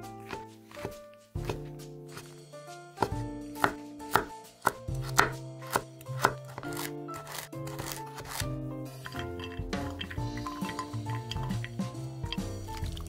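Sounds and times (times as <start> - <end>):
knife chopping on wooden board: 0.0 - 2.4, 3.0 - 8.4
background music: 0.0 - 13.0.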